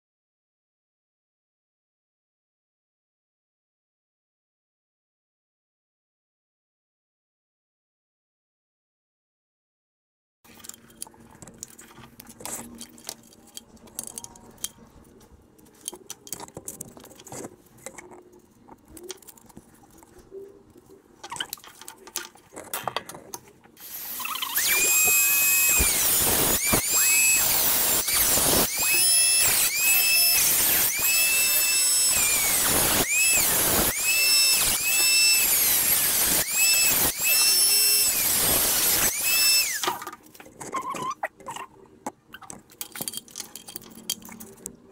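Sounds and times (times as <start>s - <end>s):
metal parts clicking: 10.5s - 20.2s, 42.4s - 44.8s
rotary tool cutting metal: 23.8s - 40.1s.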